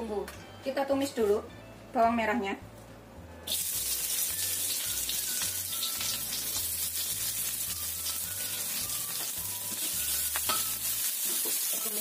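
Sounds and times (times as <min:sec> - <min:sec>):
shallots sizzling in hot oil: 0:03.5 - 0:12.0.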